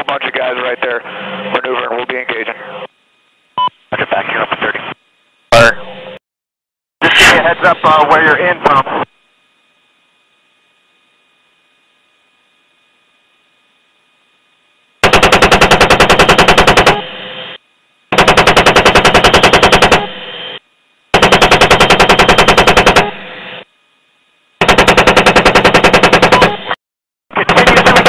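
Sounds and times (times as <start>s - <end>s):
radio static hiss: 0.0s - 2.9s, 3.6s - 5.7s, 7.0s - 9.2s, 26.5s - 28.0s
chain gun firing bursts: 15.0s - 17.0s, 18.1s - 20.1s, 21.2s - 23.1s, 24.6s - 26.6s.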